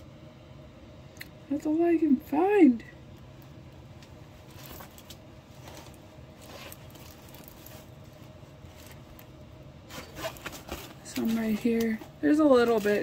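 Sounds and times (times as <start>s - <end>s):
low steady hum: 0.0s - 13.0s
canvas rustling and crinkling: 4.4s - 13.0s.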